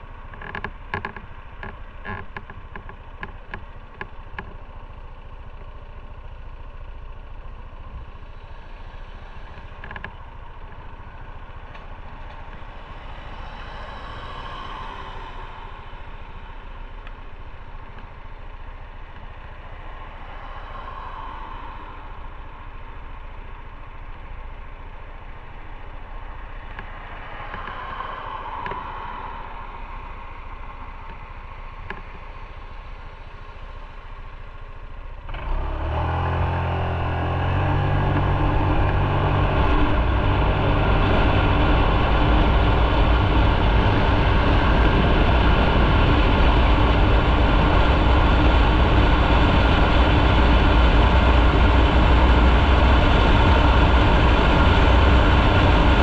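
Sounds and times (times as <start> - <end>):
motorcycle engine idling: 0.0 - 27.7, 28.3 - 35.3.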